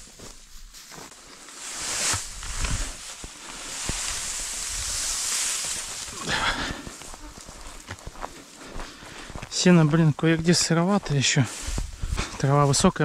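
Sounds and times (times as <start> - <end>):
hay rustling as it is raked: 0.0 - 7.8, 11.0 - 13.0.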